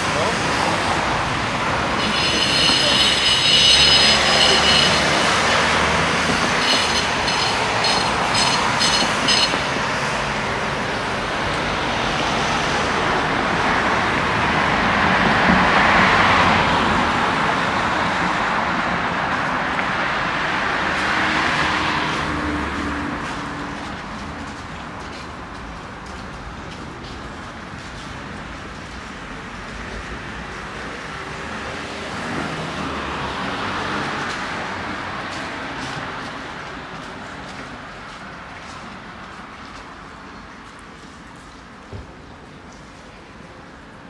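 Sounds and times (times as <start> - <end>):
street traffic passing: 0.0 - 44.0
high-pitched squeal: 1.7 - 10.1.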